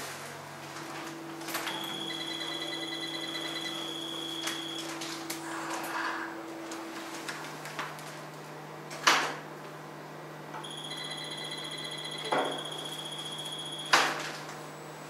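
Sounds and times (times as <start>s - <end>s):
low equipment hum: 0.0s - 15.0s
steady high electronic beep: 1.7s - 4.9s, 10.6s - 14.1s.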